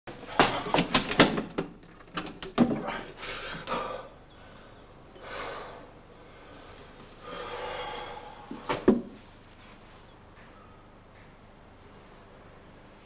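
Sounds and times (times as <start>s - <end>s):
sharp knocks and clanks: 0.3s - 2.9s.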